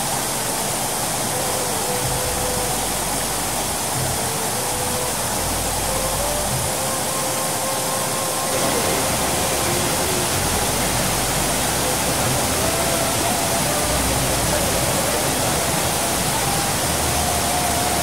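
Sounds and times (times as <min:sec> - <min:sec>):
waterfall pouring into pool: 0:00.0 - 0:18.0.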